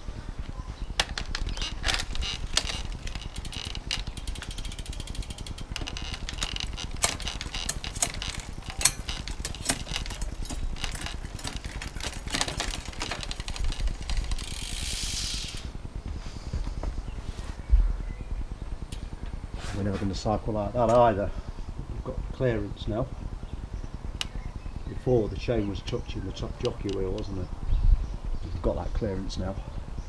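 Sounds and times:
rapid ticking: 0:00.0 - 0:16.8
sharp drivetrain clicks: 0:00.4 - 0:16.0, 0:20.7 - 0:27.4
bike chain running over gears: 0:00.9 - 0:15.8.

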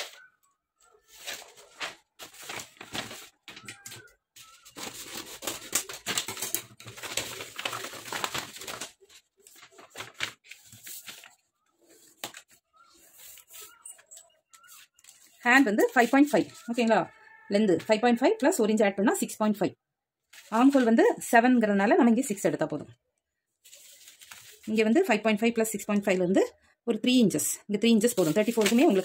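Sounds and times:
cloth rustling and crinkling: 0:00.0 - 0:16.9, 0:23.6 - 0:24.8, 0:28.0 - 0:29.0.

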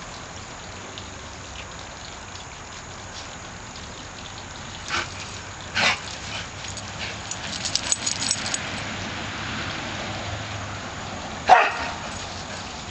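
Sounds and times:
dog barking: 0:11.5 - 0:12.0.

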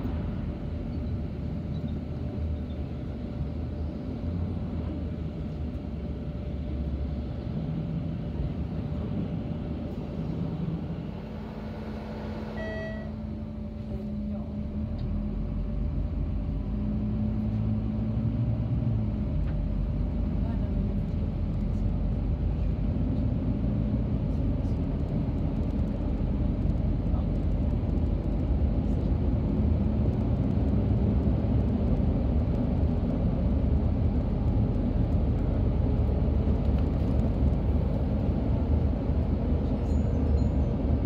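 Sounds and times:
bus engine drone: 0:00.0 - 0:41.0
tyre and road noise: 0:16.7 - 0:41.0.

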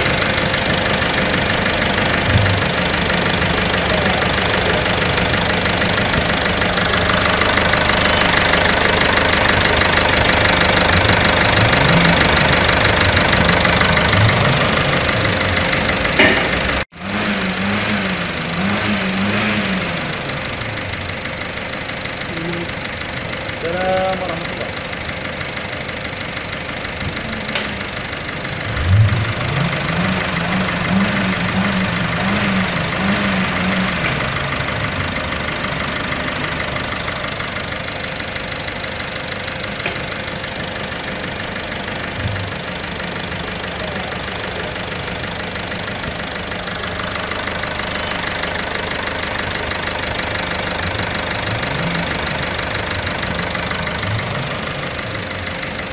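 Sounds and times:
diesel engine idling and revving: 0:00.0 - 0:55.9.

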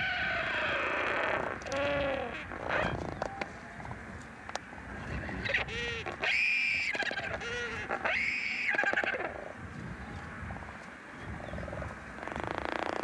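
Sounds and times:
albatross calls: 0:00.0 - 0:03.3, 0:05.0 - 0:09.5.

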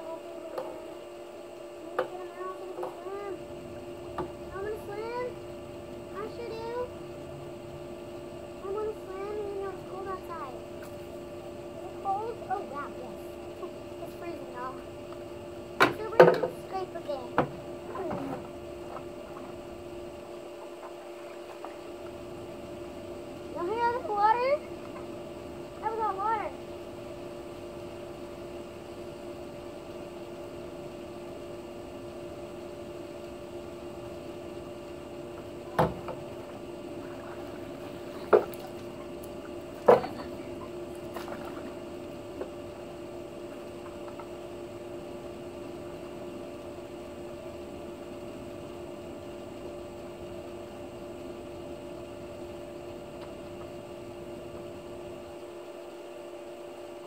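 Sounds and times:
steady two-note hum: 0:00.0 - 0:57.0
water sloshing: 0:36.3 - 0:41.8.

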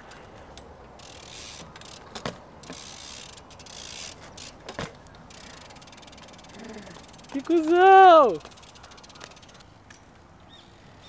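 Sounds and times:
bike rolling on concrete: 0:00.0 - 0:11.0
freewheel ratcheting: 0:01.0 - 0:09.7.

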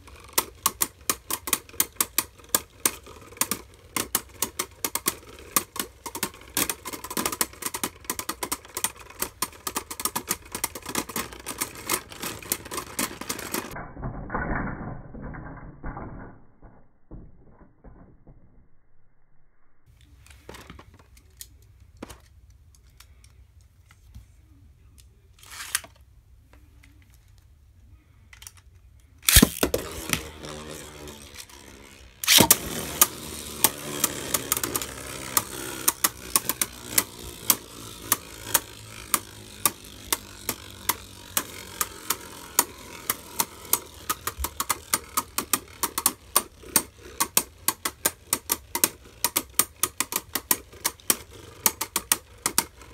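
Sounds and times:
spinning tops clattering: 0:29.2 - 0:52.9.

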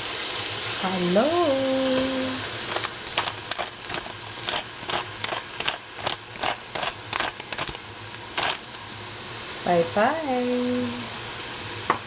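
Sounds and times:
kitchen utensil tapping and scraping: 0:02.7 - 0:07.8.

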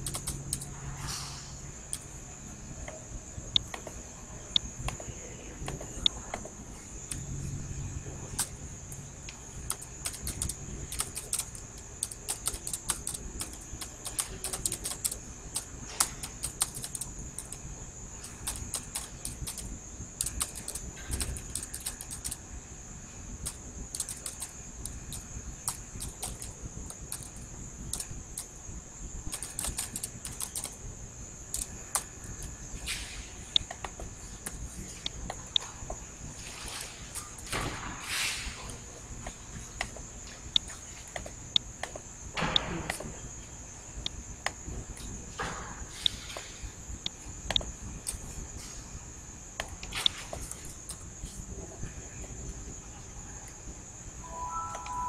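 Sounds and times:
keyboard key clicks: 0:00.0 - 0:00.7, 0:09.7 - 0:17.6, 0:18.2 - 0:22.4, 0:23.4 - 0:28.5, 0:29.3 - 0:30.8
high-pitched hiss: 0:00.0 - 0:35.6, 0:53.9 - 0:55.0.

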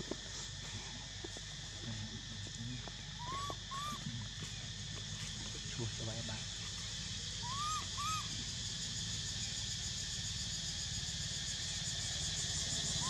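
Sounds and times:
rising then falling animal cries: 0:03.2 - 0:04.0, 0:07.4 - 0:08.3.

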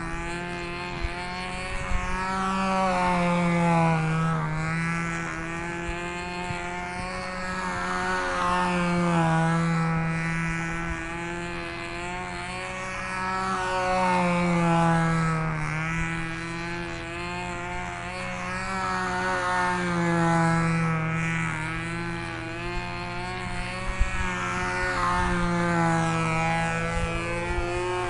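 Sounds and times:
model plane engine buzzing: 0:00.0 - 0:28.0.

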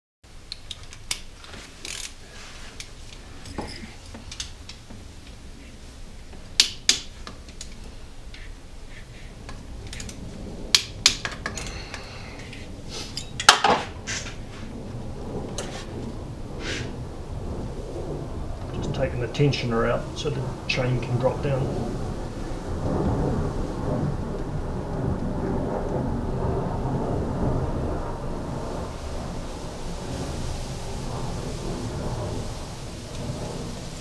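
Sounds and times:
hand tools clinking on metal: 0:03.4 - 0:04.8, 0:11.1 - 0:14.3.

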